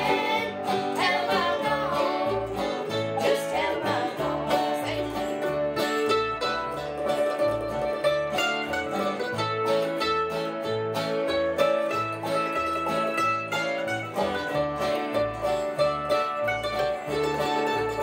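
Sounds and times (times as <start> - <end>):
woman and girl singing: 0.0 - 5.4
bluegrass band playing: 0.0 - 18.0.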